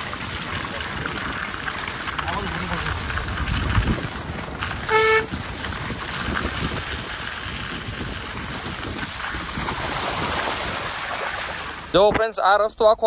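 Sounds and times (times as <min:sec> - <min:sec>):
tyres rolling on wet dirt: 0:00.0 - 0:12.3
car horn toot: 0:04.8 - 0:05.4.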